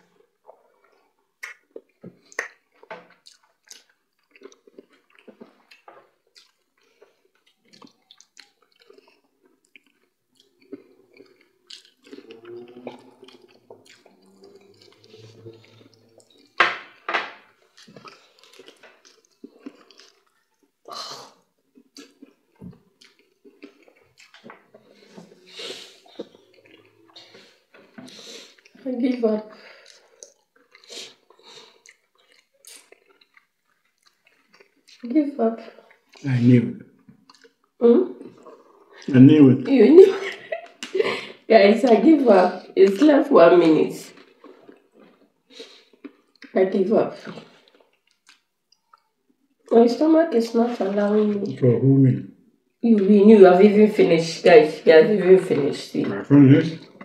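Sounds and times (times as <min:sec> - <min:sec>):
wet chewing: 0:00.0 - 0:36.3, 0:37.0 - 0:39.3, 0:41.8 - 0:49.8
food squished between fingers: 0:00.4 - 0:28.8, 0:29.6 - 0:35.1, 0:47.2 - 0:49.7
lip smacks: 0:00.5 - 0:06.6, 0:07.4 - 0:17.0
sipping water: 0:10.4 - 0:17.0.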